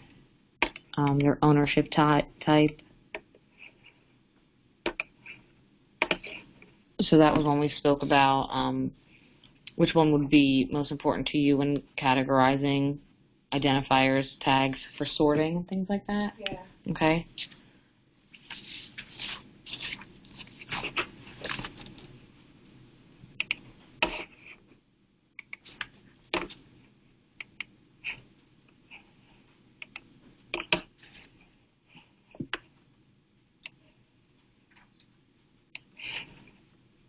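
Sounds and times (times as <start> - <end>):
rustling handling noises: 18.3 - 22.2.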